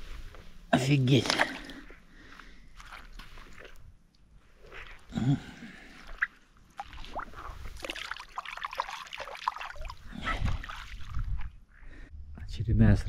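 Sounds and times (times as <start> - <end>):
water trickling and splashing: 1.0 - 1.9, 2.6 - 11.6.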